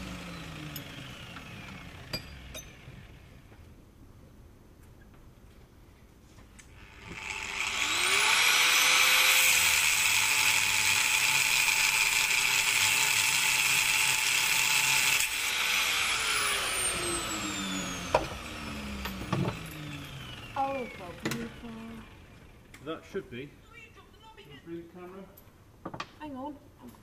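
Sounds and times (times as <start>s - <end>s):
grinder whine winding down: 0.0s - 3.4s, 6.8s - 23.5s
angle grinder cutting steel: 6.7s - 22.6s.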